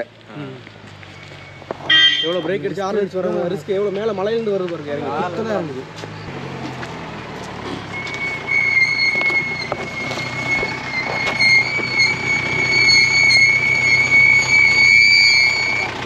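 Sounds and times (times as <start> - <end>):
brakes squealing: 0.0 - 16.0
low engine rumble: 0.0 - 16.0.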